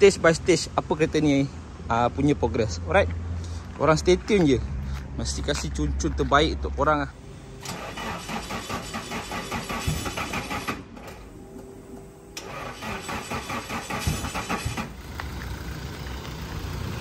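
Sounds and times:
starter motor cranking engine: 0:07.6 - 0:11.2, 0:12.4 - 0:15.0.

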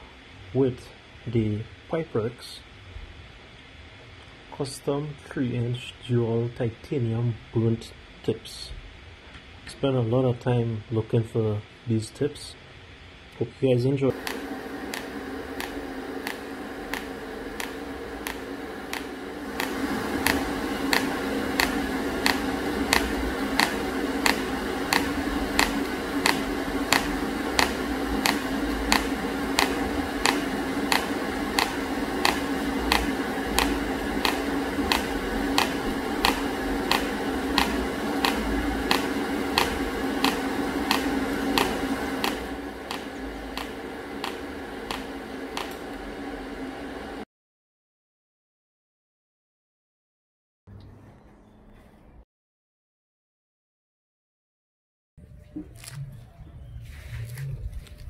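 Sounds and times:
sharp clicks: 0:14.1 - 0:46.0
welding arc humming: 0:14.1 - 0:47.2.

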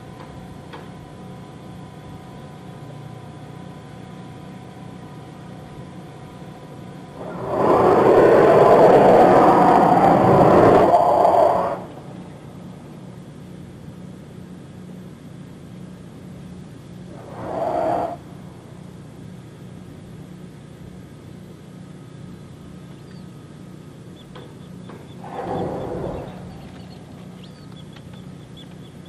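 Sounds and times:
steady low hum: 0:00.0 - 0:29.0
gas venting with loud hiss: 0:17.0 - 0:19.0.

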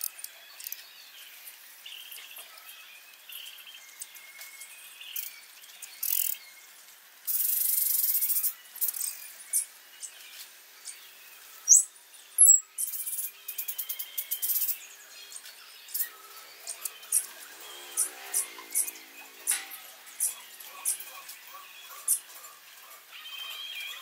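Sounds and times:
small birds chirping: 0:07.3 - 0:24.0.

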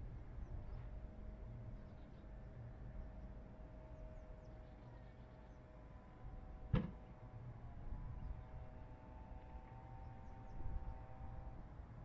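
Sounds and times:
sharp bang: 0:06.8 - 0:07.0.

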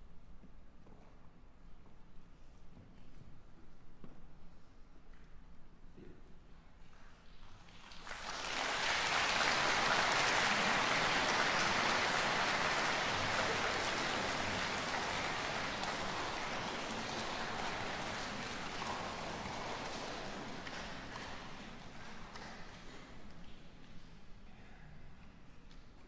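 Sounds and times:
audience applauding: 0:07.5 - 0:23.6.

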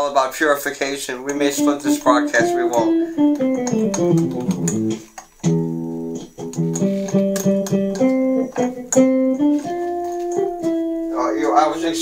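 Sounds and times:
keytar playing guitar notes and chords: 0:01.1 - 0:12.0.

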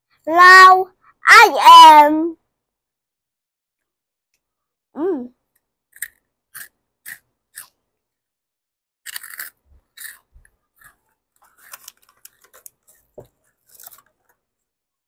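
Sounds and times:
crunching bites of snack: 0:09.1 - 0:12.7
plastic snack bag crinkling: 0:11.4 - 0:14.4.

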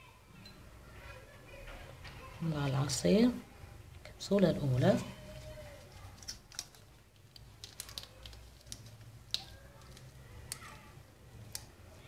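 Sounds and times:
small clicks and taps: 0:06.2 - 0:10.8.

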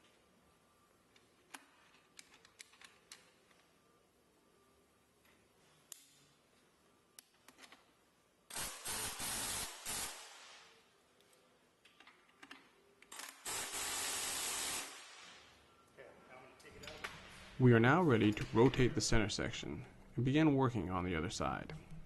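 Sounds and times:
pneumatic wrench with air hiss: 0:08.5 - 0:10.7, 0:13.1 - 0:15.5.

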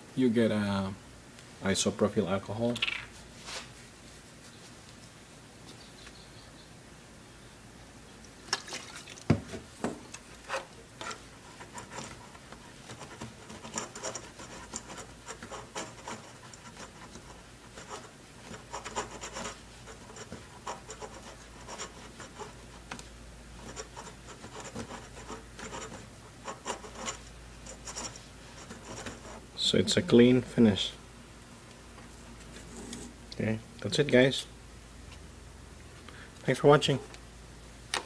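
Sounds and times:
cloth scrubbing circuit board: 0:10.4 - 0:22.8, 0:23.6 - 0:29.4.

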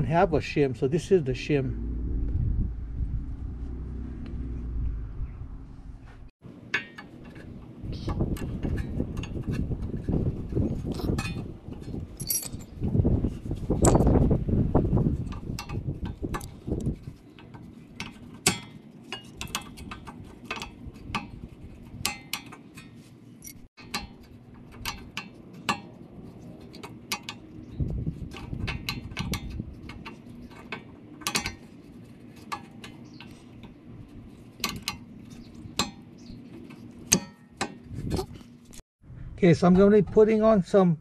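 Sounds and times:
metallic clicks and clinks: 0:12.2 - 0:12.7.

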